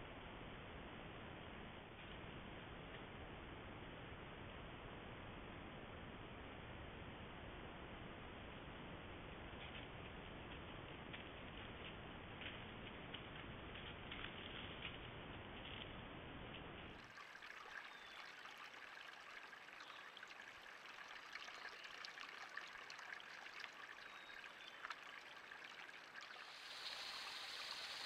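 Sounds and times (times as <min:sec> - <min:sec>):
low steady hiss: 0:00.0 - 0:28.0
small creek trickling: 0:16.8 - 0:28.0.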